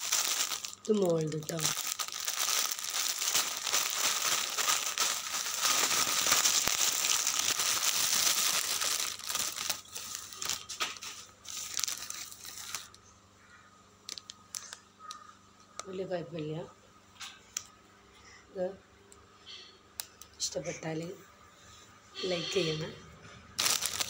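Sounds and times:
plastic bag crinkling and tearing: 0.0 - 13.0, 14.1 - 14.8, 23.6 - 24.0.

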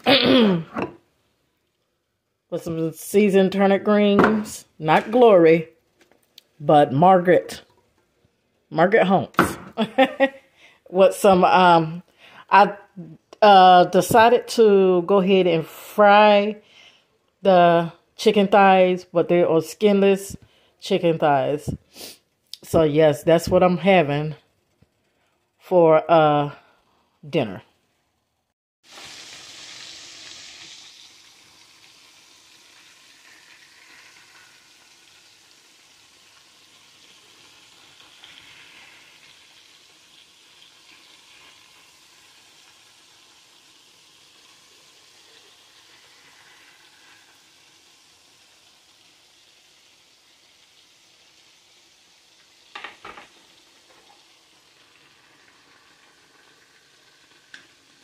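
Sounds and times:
chicken sizzling in oil: 28.8 - 58.0.

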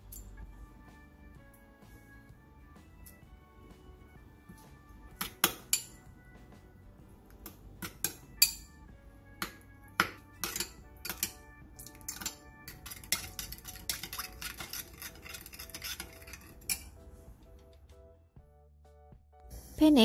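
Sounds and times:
soft background music: 0.0 - 20.0
metal spoon clinking ceramic bowl: 5.2 - 6.0, 7.8 - 8.8, 9.4 - 16.9.

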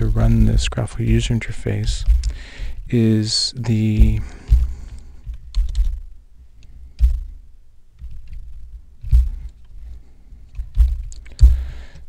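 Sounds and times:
keyboard keystrokes: 5.3 - 6.0.

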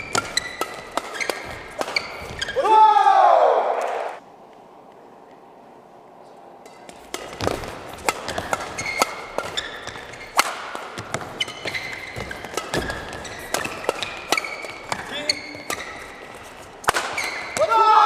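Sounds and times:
rackets striking shuttlecock: 0.0 - 2.6, 6.7 - 17.8
shoes squeaking on court: 0.0 - 2.6, 6.8 - 17.6.

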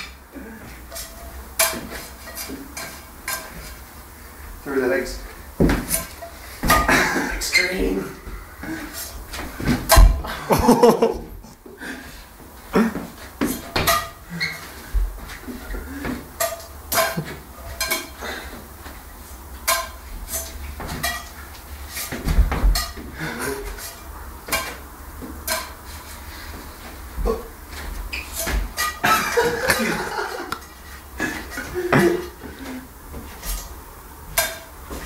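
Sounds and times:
metal frying pans clattering: 0.8 - 3.9, 5.6 - 7.7, 12.8 - 18.4, 19.6 - 26.2, 28.1 - 32.6, 33.3 - 35.0.

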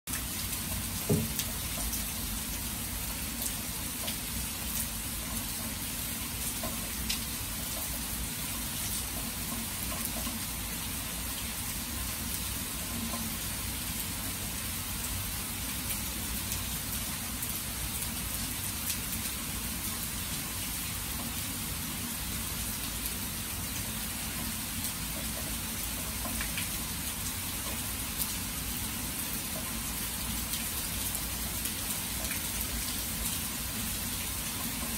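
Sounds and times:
steady rain falling: 0.1 - 34.9
rain drop ticks: 3.4 - 5.4, 6.5 - 8.0, 13.0 - 13.3, 25.1 - 26.8.

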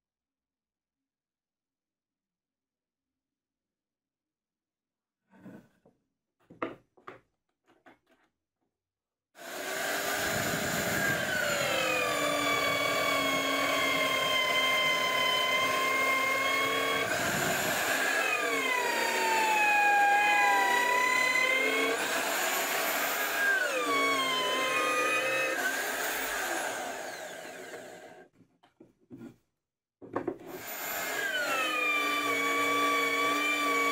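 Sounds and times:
router boring into wood: 9.4 - 28.2, 30.4 - 33.9.

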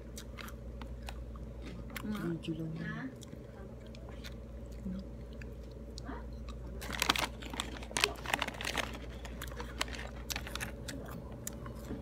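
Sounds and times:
crunching of crisp snack: 6.5 - 11.8
foil snack bag crinkling: 6.8 - 11.1.

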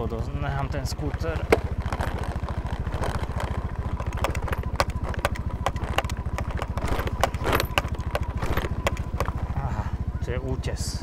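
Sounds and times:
scooter engine idling: 0.0 - 11.0
sharp clicks and taps: 1.1 - 9.4.

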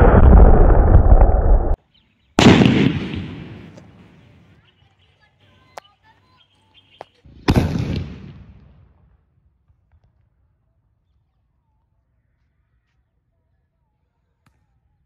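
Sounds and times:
firecracker blast: 0.0 - 1.8, 2.4 - 4.4, 7.4 - 9.0.

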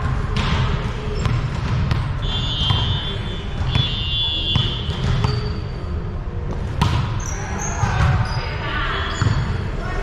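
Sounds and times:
echoing gym noise: 0.0 - 10.0
referee whistle blasts: 2.2 - 4.9.

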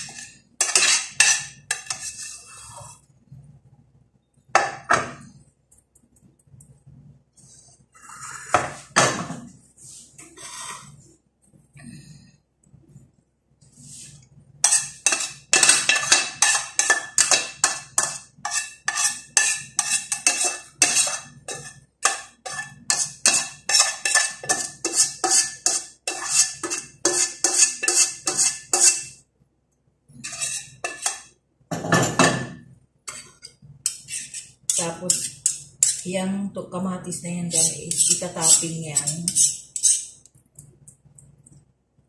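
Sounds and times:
metal spoon scraping frying pan: 0.0 - 3.0, 10.2 - 11.0, 14.0 - 29.2, 30.2 - 31.3, 33.1 - 36.1, 37.5 - 40.2.

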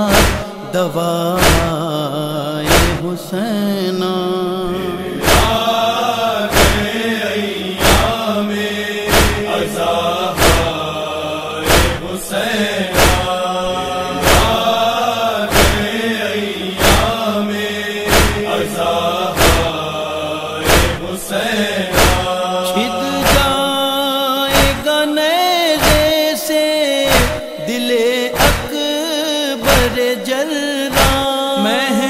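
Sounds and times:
loud rhythmic beat: 0.0 - 1.9, 2.6 - 3.1, 5.2 - 7.1, 7.8 - 8.3, 9.0 - 16.1, 16.8 - 17.3, 18.0 - 21.2, 21.9 - 23.9, 24.5 - 25.0, 25.7 - 26.4, 27.1 - 29.0, 29.6 - 30.2, 30.9 - 31.4
voices chanting a lament: 0.0 - 32.0.

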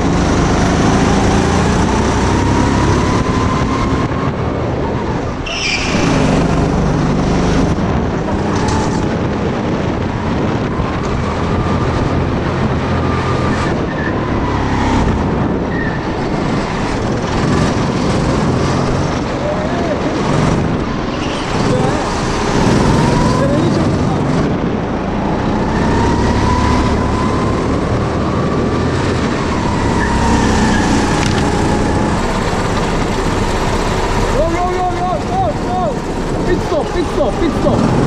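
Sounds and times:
go-kart engine running: 0.0 - 38.0
short high-pitched squeal: 5.5 - 6.2.

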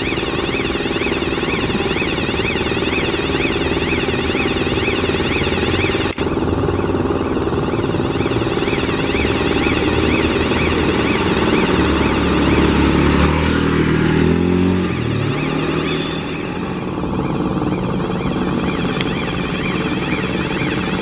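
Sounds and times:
high warbling tone: 0.0 - 21.0
steady engine drone: 0.0 - 21.0
vehicle passing by: 9.3 - 16.3.

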